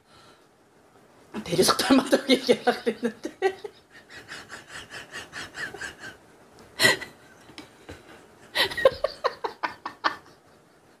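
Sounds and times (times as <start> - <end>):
women laughing: 1.9 - 6.2, 8.5 - 11.0.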